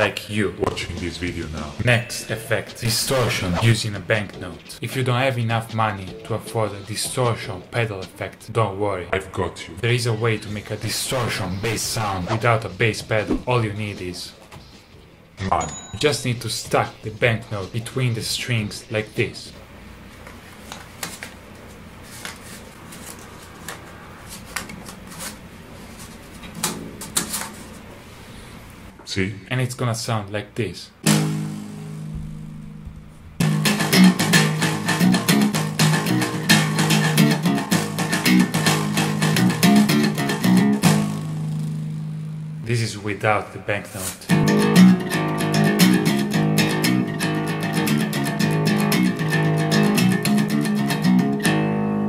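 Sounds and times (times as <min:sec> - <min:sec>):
banknote rustling and crinkling: 0:20.2 - 0:27.9
electric bass guitar plucked notes: 0:31.1 - 0:42.6, 0:44.3 - 0:52.0.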